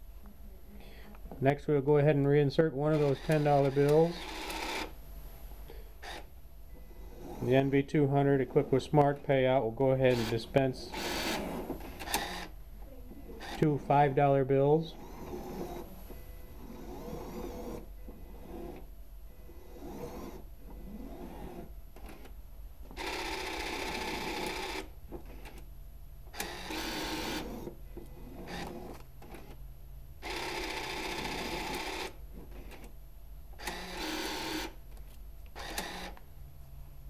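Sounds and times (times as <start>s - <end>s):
banknote validator motor whirring: 2.9s - 4.9s, 10.0s - 12.5s, 15.0s - 15.9s, 16.6s - 22.3s, 23.0s - 25.6s, 26.3s - 29.6s, 30.2s - 32.9s, 33.6s - 34.8s, 35.5s - 36.2s.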